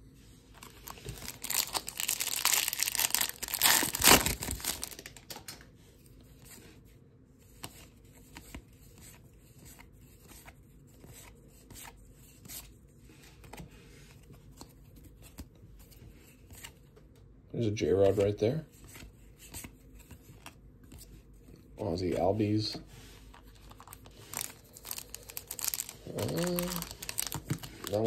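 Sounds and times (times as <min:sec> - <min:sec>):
plastic wrapper crinkling and tearing: 0:00.6 - 0:05.6, 0:23.6 - 0:28.0.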